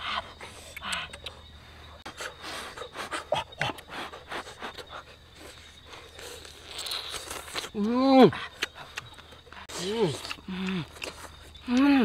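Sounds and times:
wet slurping and lip-smacking: 4.6 - 7.7.

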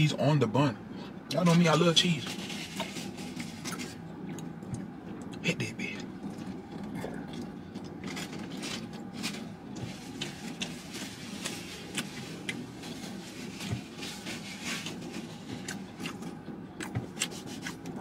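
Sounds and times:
paper napkin rustling: 2.0 - 4.0, 8.5 - 15.6
crunchy chewing: 6.3 - 18.0.

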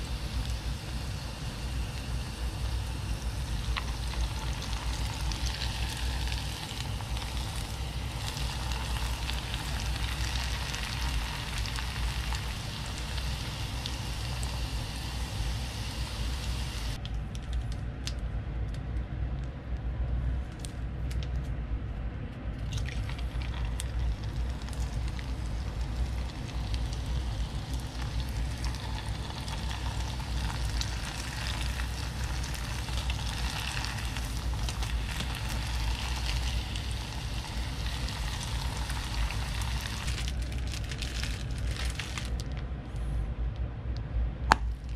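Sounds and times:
dough sizzling in hot oil: 0.0 - 17.0, 22.6 - 42.4
oil popping: 0.0 - 17.1, 22.6 - 42.5
low steady hum: 0.0 - 44.9.

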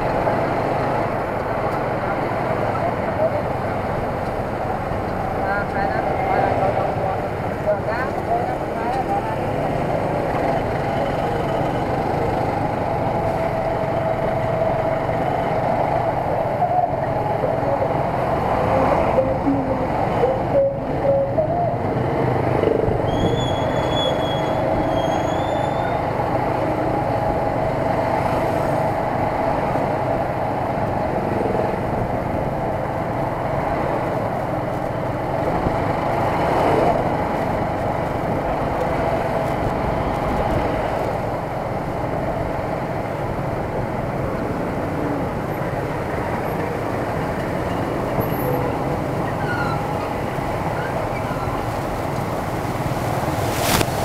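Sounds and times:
street traffic: 0.0 - 54.0.

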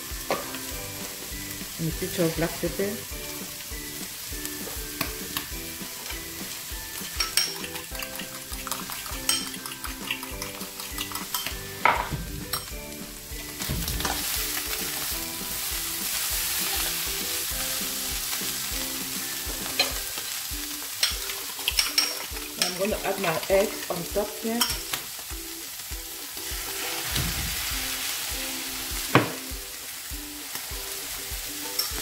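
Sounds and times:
food sizzling in oil: 0.0 - 32.0
fork beating eggs in a bowl: 7.1 - 11.6.

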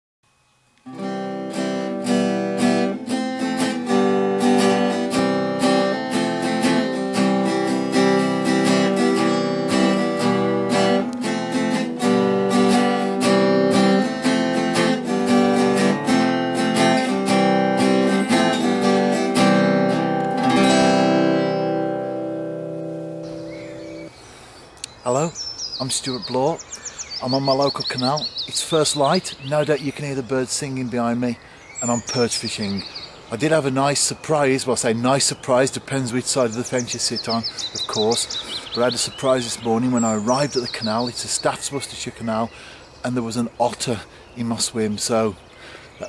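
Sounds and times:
acoustic guitar strumming: 0.8 - 24.1, 33.4 - 41.6.

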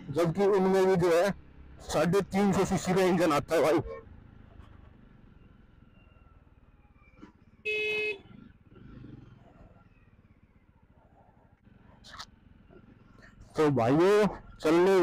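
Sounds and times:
motorcycle running faintly: 0.0 - 15.0
vehicle horn blast: 7.6 - 8.3.

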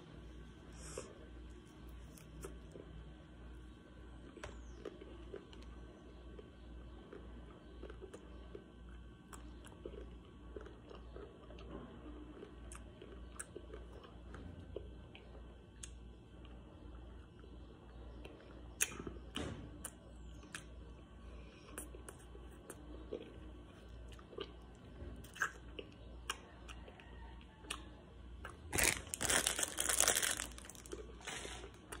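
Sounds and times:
chewing and lip smacks: 4.2 - 16.6, 17.3 - 19.2, 19.8 - 20.8, 21.5 - 28.9.

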